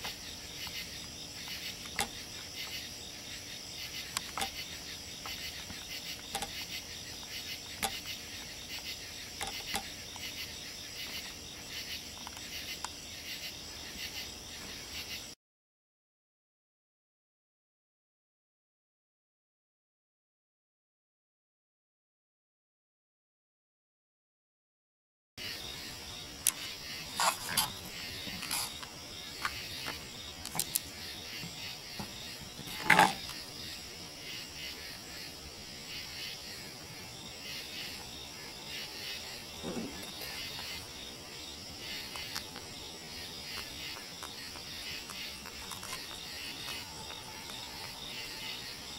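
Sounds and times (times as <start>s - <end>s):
crickets and insects chirring: 0.0s - 15.4s, 25.4s - 48.9s.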